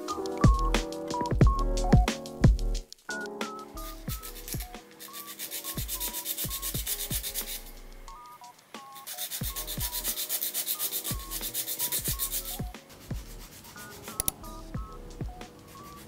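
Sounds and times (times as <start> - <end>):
nail file rasping on plastic: 4.0 - 7.7, 9.0 - 14.4.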